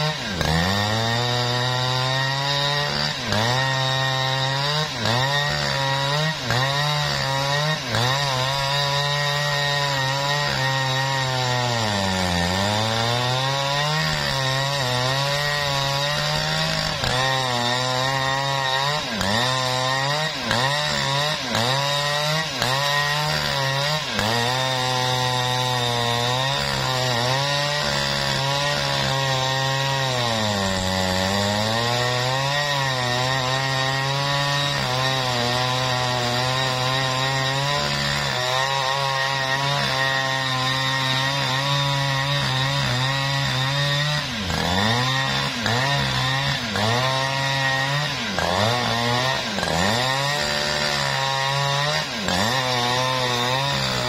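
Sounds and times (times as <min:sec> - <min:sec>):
chainsaw cutting log: 0:00.0 - 0:54.0.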